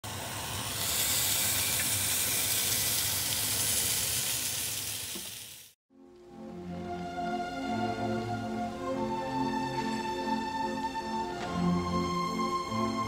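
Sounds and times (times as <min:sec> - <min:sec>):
food sizzling in frying pan: 0:00.0 - 0:05.8
soft instrumental music: 0:05.9 - 0:13.0.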